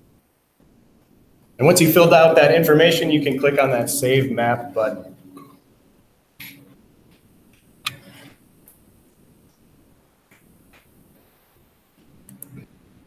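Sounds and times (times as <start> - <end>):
computer mouse clicks: 12.2 - 12.7.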